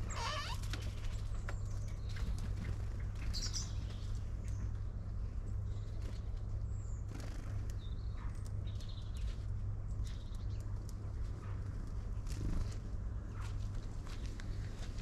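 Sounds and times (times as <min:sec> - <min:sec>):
small birds chirping: 0:00.0 - 0:15.0
steady low hum: 0:00.0 - 0:15.0.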